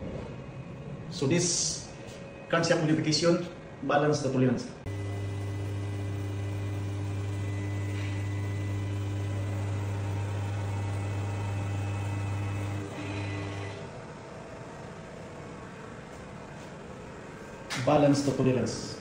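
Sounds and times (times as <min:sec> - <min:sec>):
balancing machine humming: 0:04.9 - 0:17.4.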